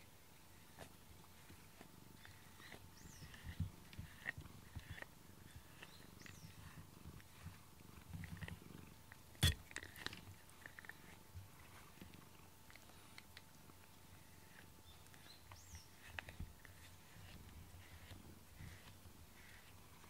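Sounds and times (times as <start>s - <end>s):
brush strokes in fur: 0.0s - 8.6s, 12.8s - 20.0s
cat purring: 0.5s - 20.0s.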